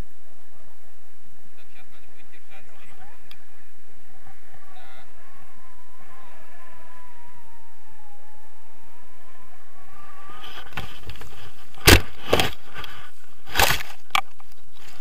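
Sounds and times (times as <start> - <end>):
faint wavering whistle: 2.6 - 11.7
harness and feet thudding on ground: 10.4 - 14.1.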